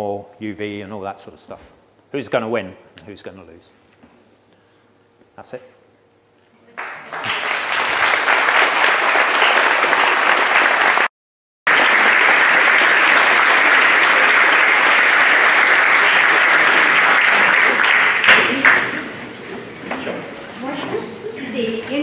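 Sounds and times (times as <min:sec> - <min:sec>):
audience applauding: 0:06.8 - 0:11.1, 0:11.7 - 0:19.2.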